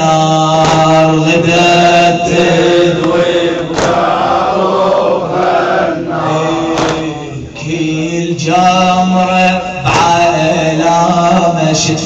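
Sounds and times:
men chanting in unison: 0.0 - 12.0
hands beating on chests: 0.6 - 1.1, 3.0 - 4.2, 6.7 - 7.2.

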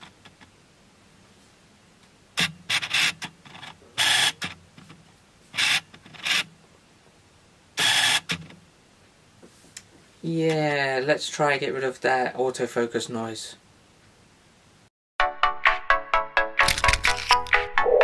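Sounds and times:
lens autofocus motor bursts: 4.0 - 4.4, 7.8 - 8.2.

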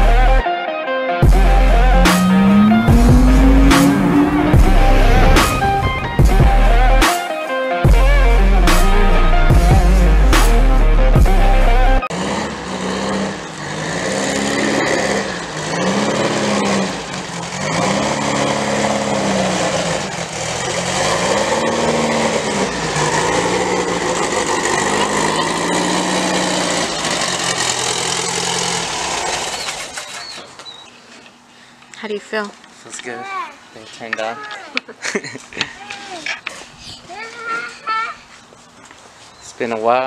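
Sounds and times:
car engine revving: 1.2 - 7.0, 7.9 - 29.9.

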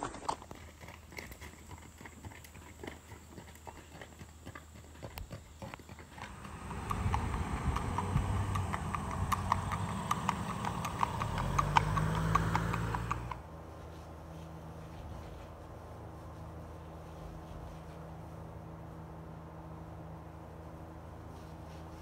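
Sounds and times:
horse hooves clip-clopping on pavement: 0.0 - 14.2
steady hum: 6.2 - 11.6
low rumble: 6.2 - 12.2.

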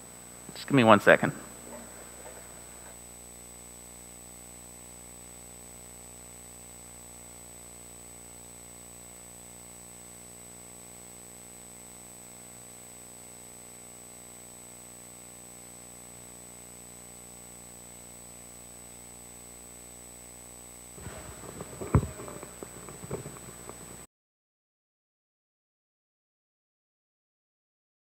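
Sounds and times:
electrical hum: 0.0 - 13.8, 20.5 - 24.1.

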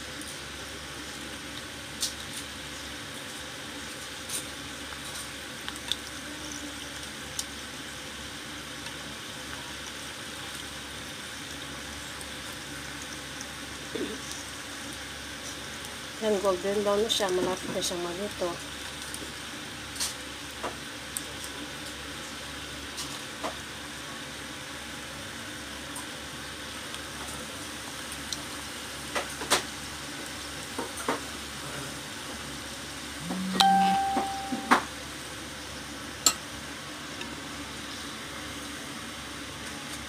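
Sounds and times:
deep-frying sizzle: 0.0 - 40.0
brief steady tone: 33.2 - 34.9.

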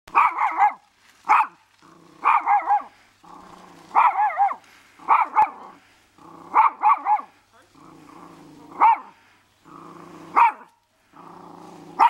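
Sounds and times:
small dog barking: 0.1 - 1.6, 2.2 - 3.0, 3.9 - 5.8, 6.5 - 7.4, 8.7 - 9.2, 10.3 - 10.8
dog growling: 1.8 - 7.0, 7.7 - 12.0.

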